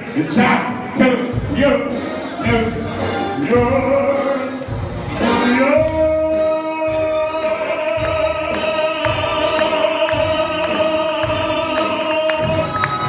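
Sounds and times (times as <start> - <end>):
band playing a beat: 0.3 - 13.0.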